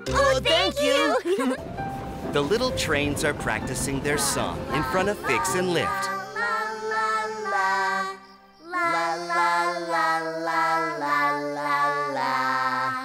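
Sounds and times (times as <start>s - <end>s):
instrumental backing music: 0.0s - 6.2s
voices singing: 2.4s - 13.0s.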